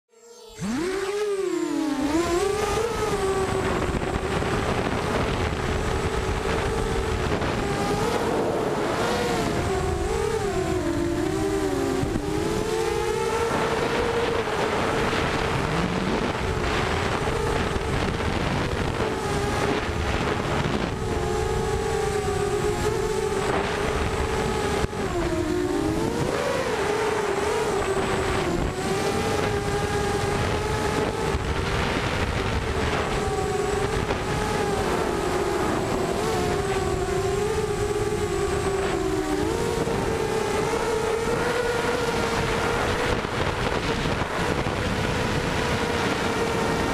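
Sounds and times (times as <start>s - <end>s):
quadcopter motors whining: 0.1s - 46.9s.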